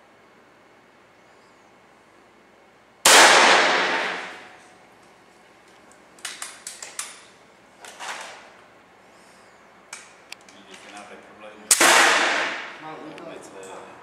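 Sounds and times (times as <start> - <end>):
air rifle shot: 3.1 - 4.6, 11.7 - 12.8
rifle handling clicks: 5.7 - 8.0.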